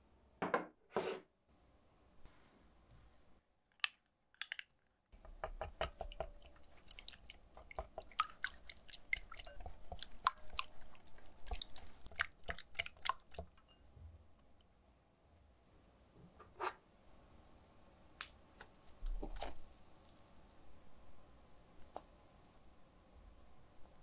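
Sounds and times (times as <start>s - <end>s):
wet squelching mixture: 3.7s - 13.7s.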